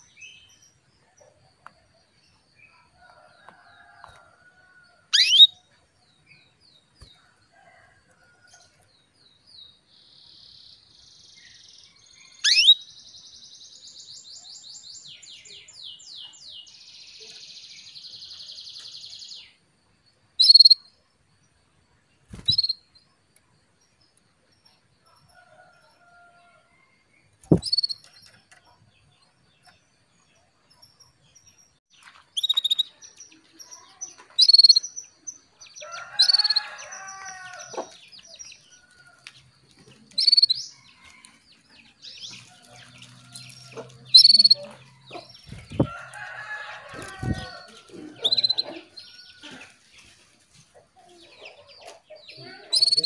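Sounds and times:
canary chirping: 5.1 - 5.7, 12.3 - 12.9, 20.4 - 20.8, 22.3 - 22.9, 27.5 - 28.1, 32.4 - 33.2, 34.0 - 38.8, 40.1 - 41.2, 42.0 - 49.2, 52.2 - 53.0
thumps: 27.5 - 27.8.

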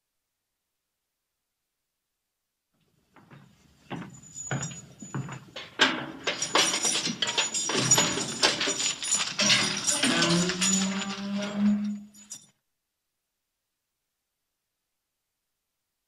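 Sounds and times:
rapid clicks and clinks: 5.6 - 12.4.

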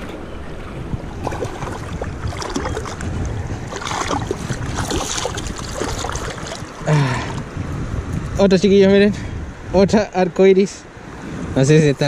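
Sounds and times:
river current rushing: 0.0 - 8.0
fish splashing at water surface: 1.2 - 6.9.

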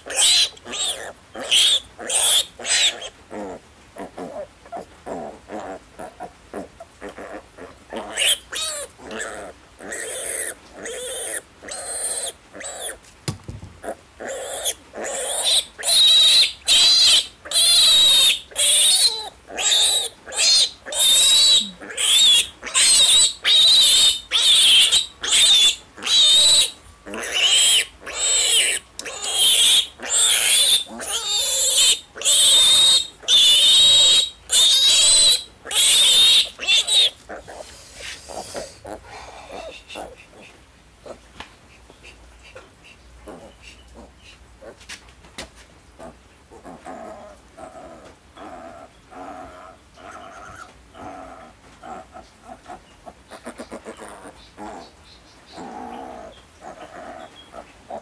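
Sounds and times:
piglet squealing: 0.0 - 7.4, 8.0 - 13.0, 13.8 - 37.6.

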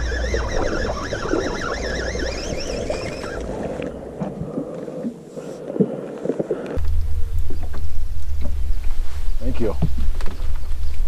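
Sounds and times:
warbling whistle-like tone: 0.0 - 4.0.

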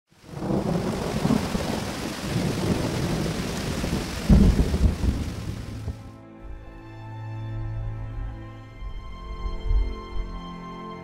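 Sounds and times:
steady rain hiss: 0.1 - 6.1
thunder rumbling: 0.2 - 6.1.

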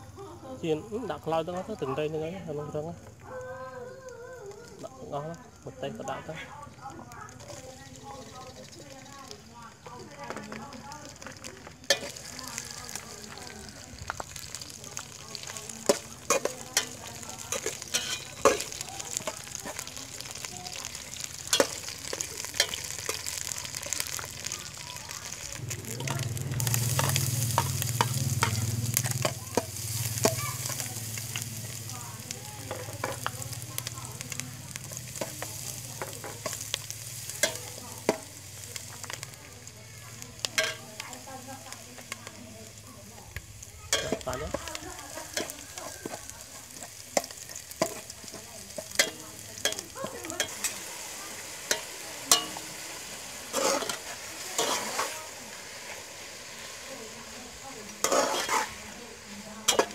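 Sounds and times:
food sizzling in oil: 0.0 - 59.9
metal spatula scraping pot: 15.4 - 24.4, 53.4 - 55.2, 57.9 - 58.9.

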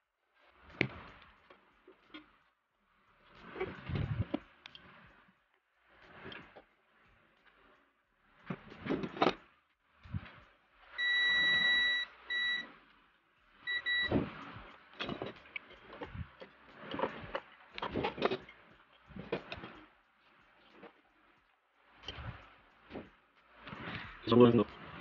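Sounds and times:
multimeter beeps: 11.0 - 12.7, 13.6 - 14.2.

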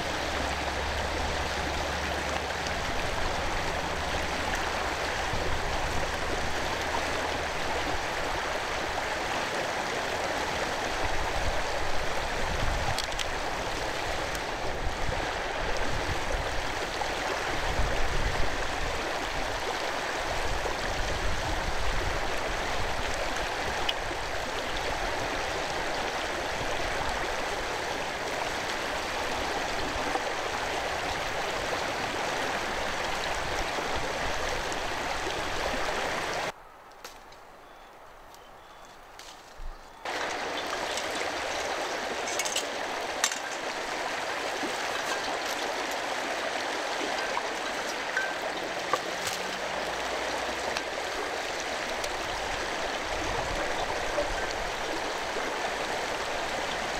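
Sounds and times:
stream flowing: 0.0 - 38.3, 39.0 - 56.9.

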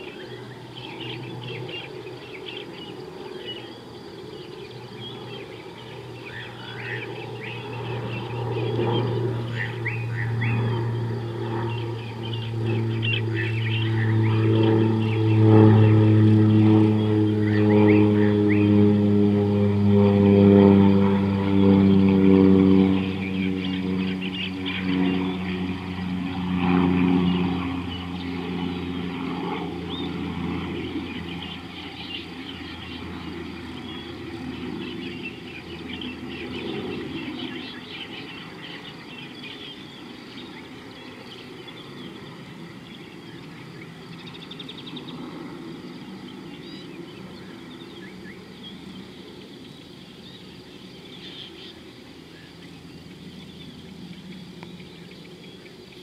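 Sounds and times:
birds chirping: 0.0 - 56.0
distant engine hum: 0.0 - 56.0
insects chirping: 0.0 - 56.0.

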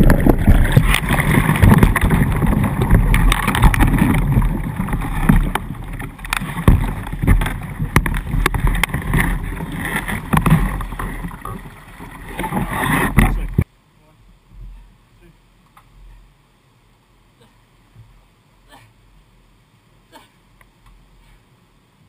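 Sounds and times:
kayak hull knocking on rock: 0.0 - 13.6
rushing water: 0.0 - 15.6.

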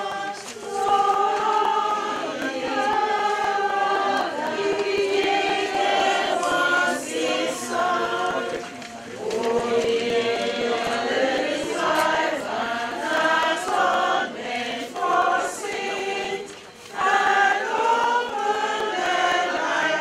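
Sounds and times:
church choir singing a hymn: 0.0 - 20.0.

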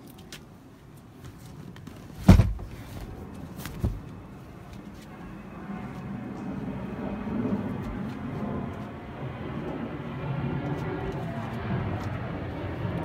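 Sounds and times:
storage lid thumping shut: 2.2 - 2.7.

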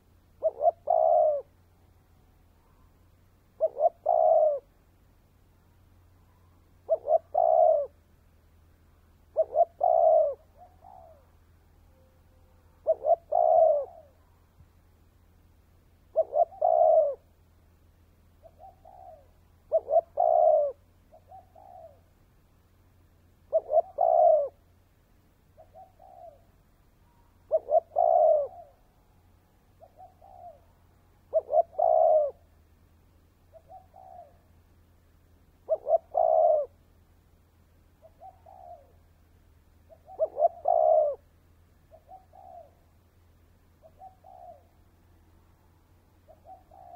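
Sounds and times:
dove cooing: 0.0 - 1.9, 2.6 - 4.8, 5.9 - 8.1, 9.2 - 14.4, 16.0 - 17.4, 18.4 - 22.2, 23.4 - 24.8, 25.5 - 29.0, 29.7 - 32.6, 33.5 - 34.6, 35.6 - 36.9, 38.0 - 39.2, 39.8 - 43.1, 43.8 - 45.0, 46.2 - 46.9.

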